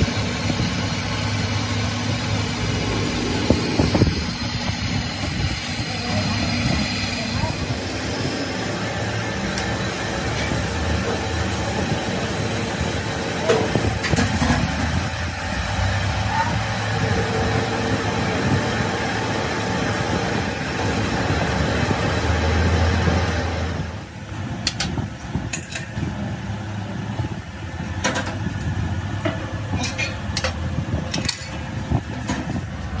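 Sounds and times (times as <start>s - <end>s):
low hum: 0.0s - 10.4s
lathe grinding noise: 0.8s - 13.2s.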